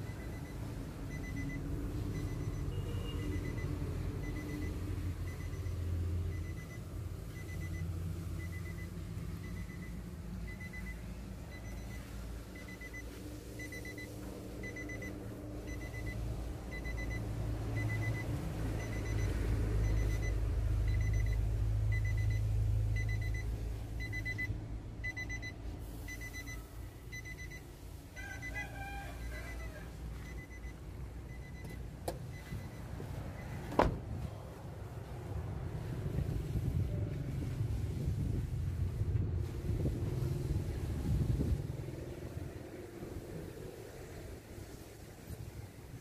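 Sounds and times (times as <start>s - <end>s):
car warning chime beeping: 0.0s - 33.7s.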